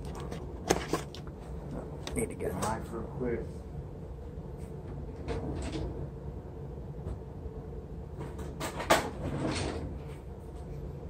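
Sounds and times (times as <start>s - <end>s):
drawer opening and shutting: 5.2s - 6.0s, 8.2s - 10.2s.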